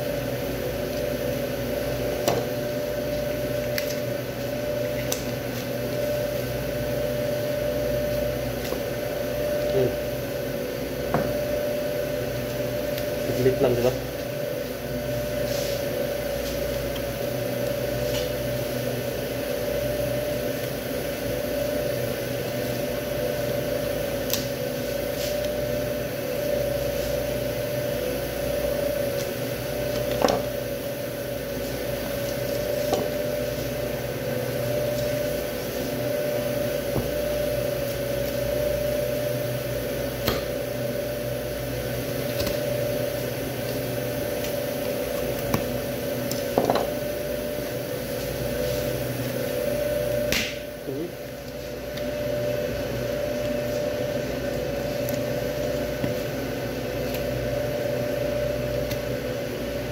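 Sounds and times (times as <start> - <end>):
machine hum: 0.0 - 59.9.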